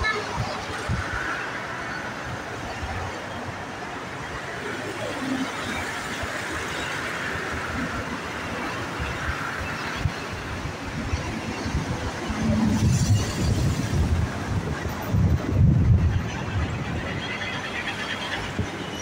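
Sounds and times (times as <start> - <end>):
wind buffeting microphone: 8.8 - 17.4.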